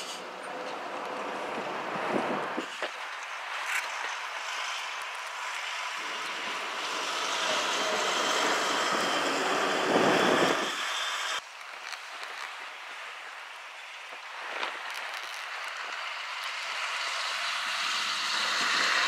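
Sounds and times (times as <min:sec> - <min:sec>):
traffic noise: 0:00.0 - 0:19.0
truck driving past: 0:01.1 - 0:11.4, 0:15.6 - 0:19.0.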